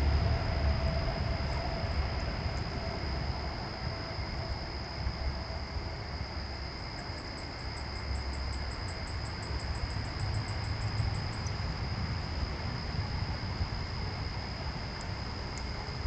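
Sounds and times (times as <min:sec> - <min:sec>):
low rumble: 0:00.0 - 0:06.6
high-pitched insect trill: 0:00.0 - 0:16.0.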